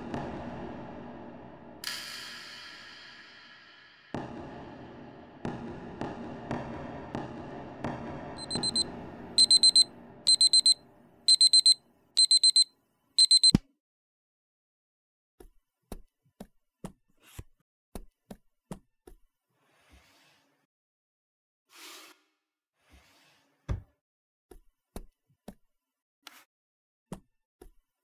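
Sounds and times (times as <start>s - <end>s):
thump slapping alarm off: 8.4s - 8.8s, 13.2s - 13.6s
alarm clock beeping: 8.4s - 13.6s.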